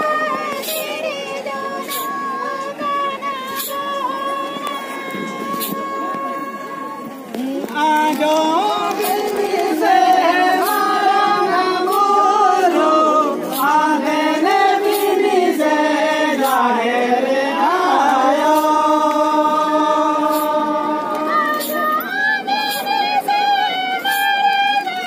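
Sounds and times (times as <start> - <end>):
group singing in unison: 0.0 - 2.9, 7.4 - 24.2.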